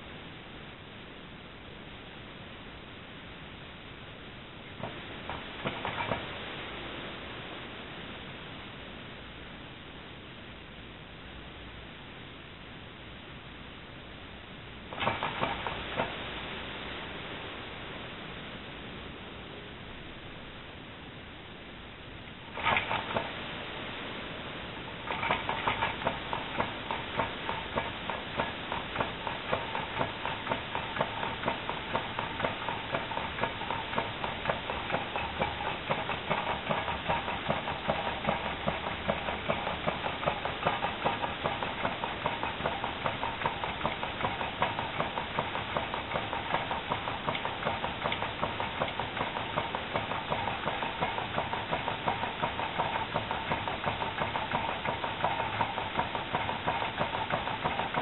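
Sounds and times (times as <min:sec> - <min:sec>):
small engine linkage clicking: 0:04.8 - 0:06.4, 0:14.9 - 0:16.3, 0:22.5 - 0:23.4, 0:24.9 - 0:58.0.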